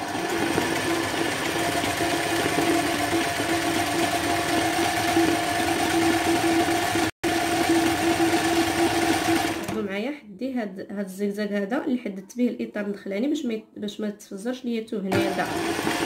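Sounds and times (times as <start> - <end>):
sewing machine running: 0.0 - 9.8.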